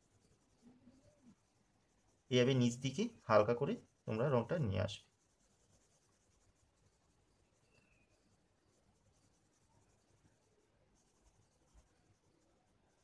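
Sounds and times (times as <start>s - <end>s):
crayon scratching on paper: 0.0s - 13.0s.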